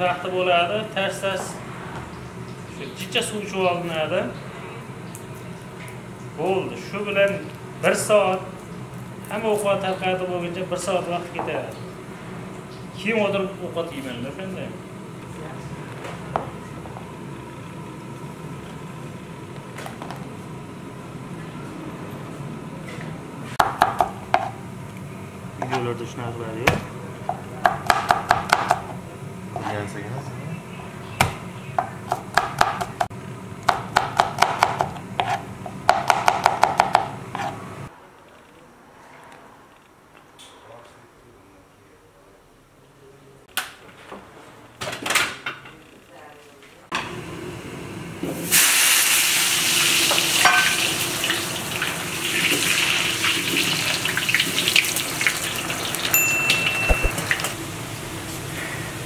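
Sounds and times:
knife chopping on wooden board: 0:33.7 - 0:37.6
potatoes sizzling in hot oil: 0:48.4 - 0:56.1
metal skimmer clinking on pot: 0:56.1 - 0:57.5.

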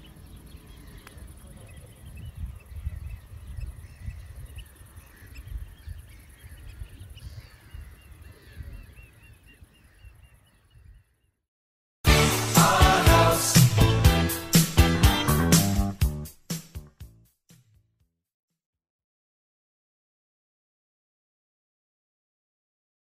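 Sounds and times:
loud upbeat music: 0:12.0 - 0:17.2.

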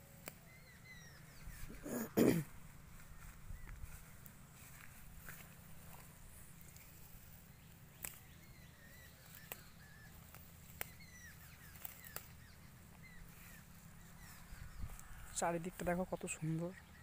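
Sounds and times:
faint bird chirps: 0:00.0 - 0:17.0
plant stems snapping: 0:00.2 - 0:00.4, 0:07.9 - 0:08.4, 0:09.2 - 0:12.4.

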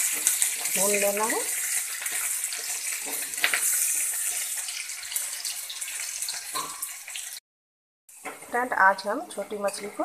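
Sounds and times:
onions sizzling in oil: 0:00.0 - 0:07.4, 0:08.1 - 0:10.0
spatula scraping and knocking pan: 0:02.0 - 0:04.4.

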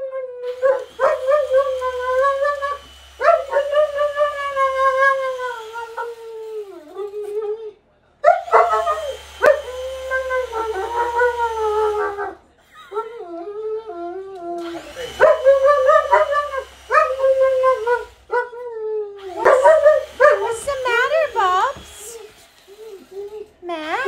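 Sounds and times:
dog whining and howling: 0:00.0 - 0:21.6.

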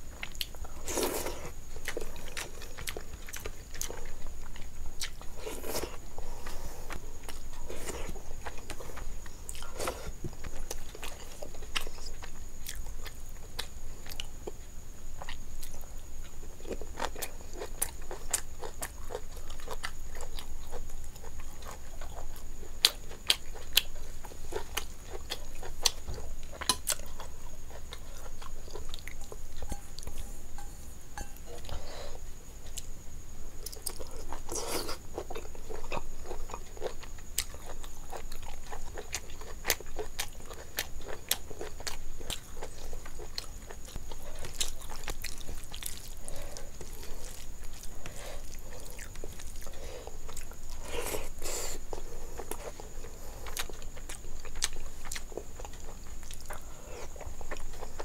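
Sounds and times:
chewing and biting: 0:33.6 - 0:58.0.

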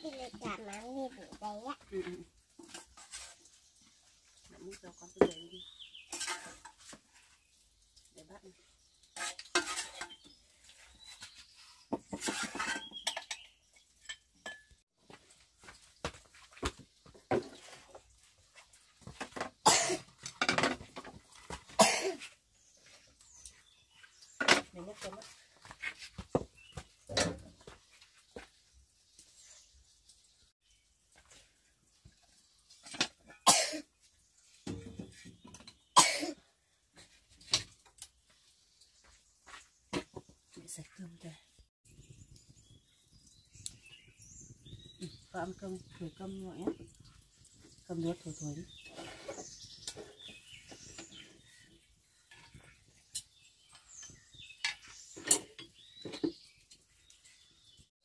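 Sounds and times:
birds chirping: 0:00.0 - 0:31.4, 0:38.2 - 0:57.9
chopsticks and bowls clinking: 0:06.0 - 0:07.0
person coughing: 0:19.7 - 0:20.0, 0:21.8 - 0:22.2, 0:33.5 - 0:33.8, 0:36.0 - 0:36.4.

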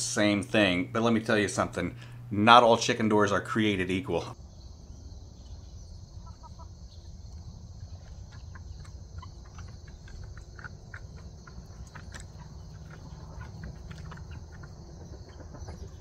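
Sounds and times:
crickets chirring: 0:00.2 - 0:16.0
chickens clucking: 0:06.0 - 0:16.0.

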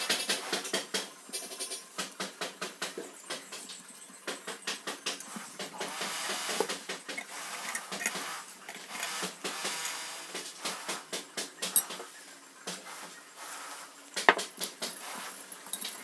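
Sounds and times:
metal knocks and clinks: 0:11.6 - 0:12.1, 0:14.2 - 0:16.0.

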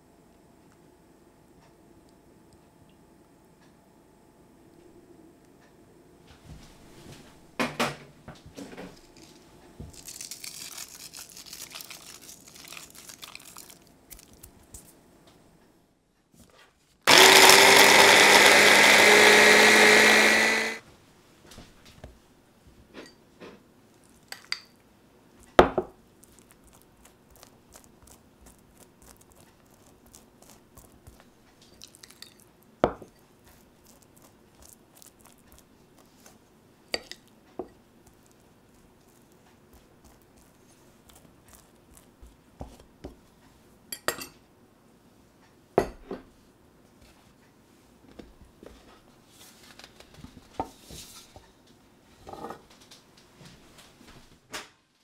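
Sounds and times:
food processor motor whine: 0:17.1 - 0:20.8.

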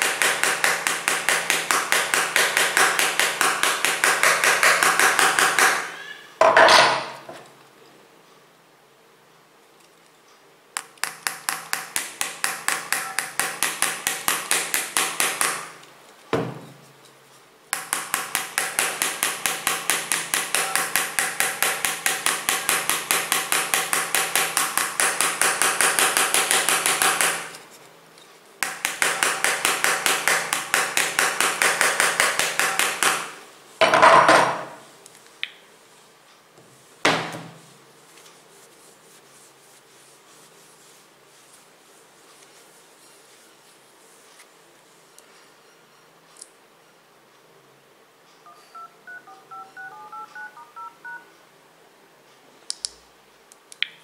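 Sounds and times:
hammer tapping glass screen: 0:00.0 - 0:06.0, 0:11.0 - 0:15.8, 0:17.8 - 0:27.5, 0:28.6 - 0:33.4.

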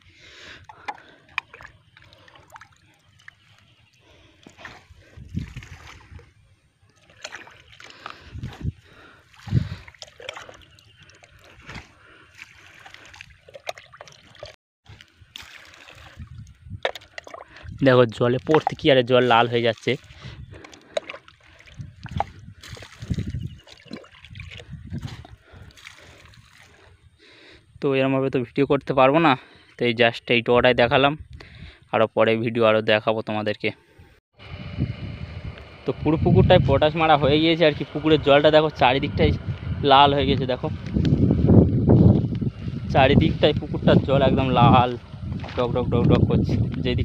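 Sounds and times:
liquid splashing into pond water: 0:00.3 - 0:08.3, 0:08.9 - 0:26.9.

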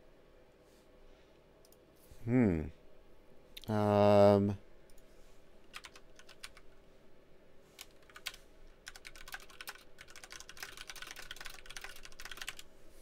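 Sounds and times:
typing on computer keyboard: 0:05.7 - 0:06.6, 0:07.8 - 0:12.6.

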